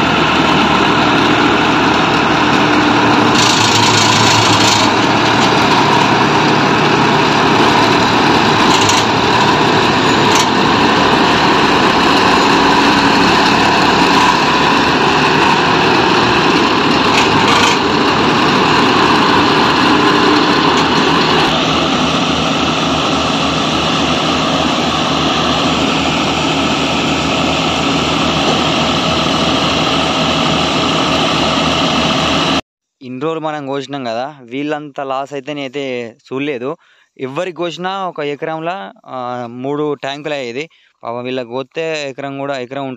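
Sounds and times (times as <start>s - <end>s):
grain unloading through auger: 0.0s - 32.5s
combine harvester running: 0.0s - 32.6s.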